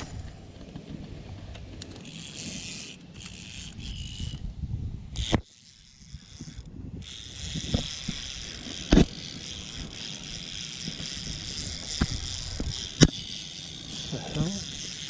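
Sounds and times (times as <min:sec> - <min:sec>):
wind rumble on microphone: 0:03.7 - 0:05.3.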